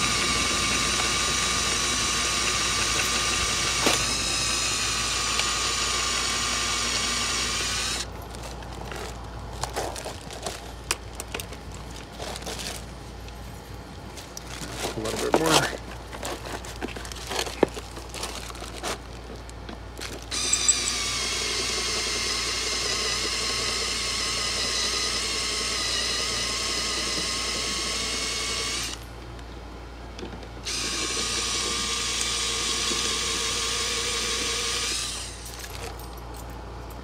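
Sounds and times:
cordless drill drilling metal: 0.0 - 8.1, 20.3 - 29.0, 30.6 - 35.6.

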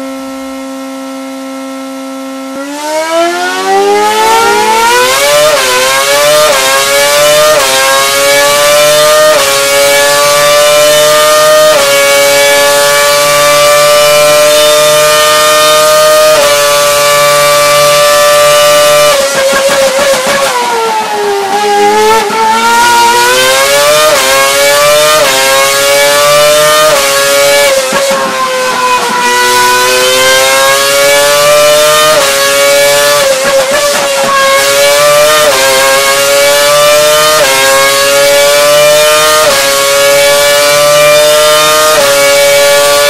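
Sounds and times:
racing engine revving high: 0.0 - 43.0.

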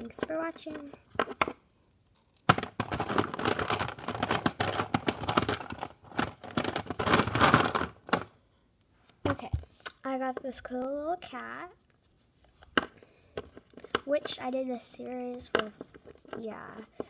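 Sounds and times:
hands rummaging with crinkling: 2.6 - 8.3.

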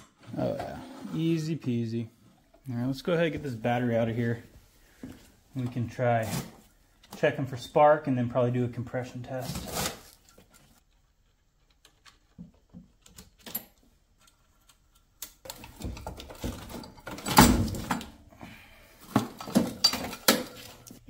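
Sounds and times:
metal clinks and knocks: 19.2 - 20.9.

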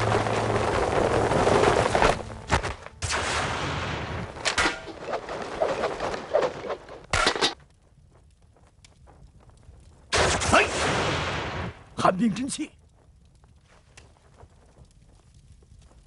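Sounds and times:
sharp bangs: 0.0 - 5.9
flames bursting up: 0.0 - 16.0.

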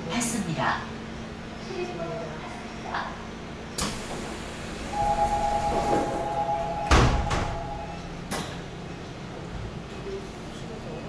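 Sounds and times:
sliding doors shutting with thud: 3.8 - 7.8
two-tone warning buzzer: 4.9 - 8.0
light door clunk: 5.7 - 8.5.

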